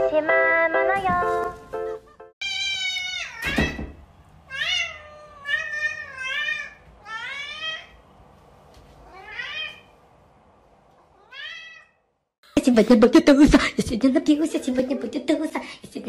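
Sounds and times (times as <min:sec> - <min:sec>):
cat meowing: 0:02.4 - 0:03.8, 0:04.5 - 0:08.0, 0:09.0 - 0:09.9, 0:11.1 - 0:12.0.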